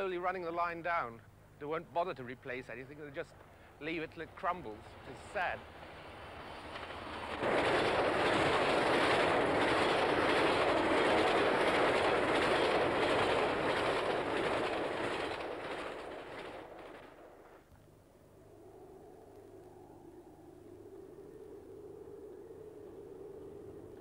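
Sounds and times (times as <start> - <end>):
freight train passing at speed: 2.7 - 17.6.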